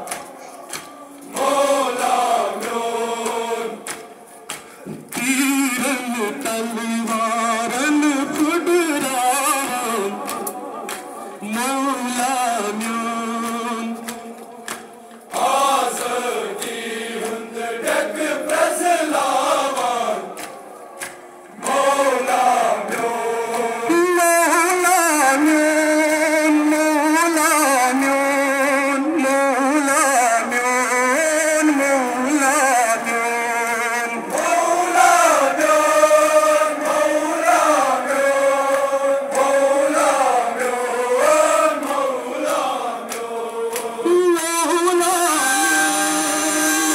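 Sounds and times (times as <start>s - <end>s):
men chanting a lament: 0.0s - 46.9s.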